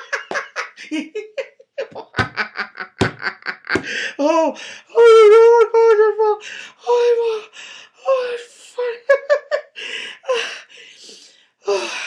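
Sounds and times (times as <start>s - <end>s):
man laughing hard: 0.0s - 4.2s.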